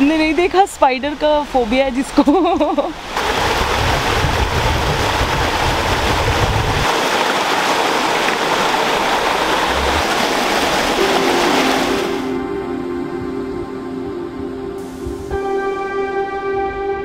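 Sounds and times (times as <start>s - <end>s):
stream rushing over rocks: 2.9s - 12.4s
soft music: 10.7s - 17.0s.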